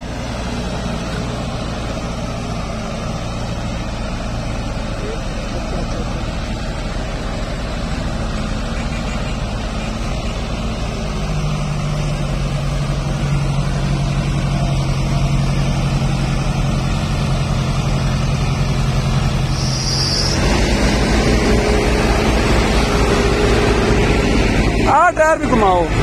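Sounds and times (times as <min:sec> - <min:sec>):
tractor diesel engine under load: 0:00.0 - 0:26.0.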